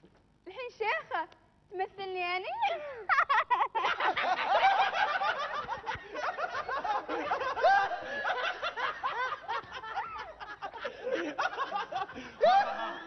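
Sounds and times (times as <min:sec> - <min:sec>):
group of people laughing: 0:03.1 - 0:13.0.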